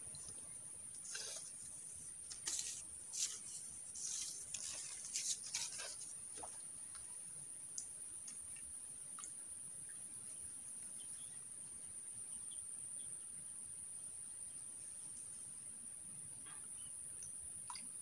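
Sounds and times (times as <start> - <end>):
scratchy rustling: 1.0 - 6.2.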